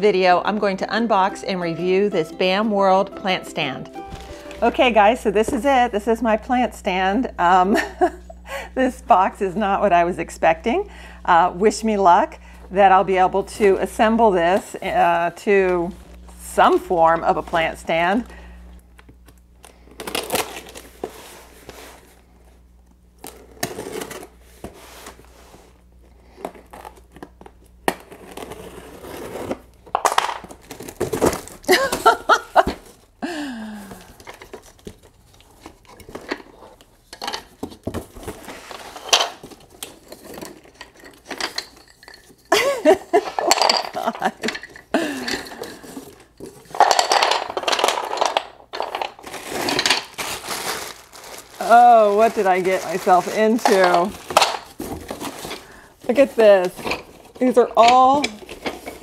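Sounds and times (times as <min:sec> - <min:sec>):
plastic bags crinkling: 0:04.0 - 0:06.3, 0:30.4 - 0:59.0
cardboard tearing and rustling: 0:19.8 - 0:22.1, 0:23.2 - 0:25.4, 0:26.5 - 0:29.7, 0:30.5 - 0:33.0, 0:49.1 - 0:57.5.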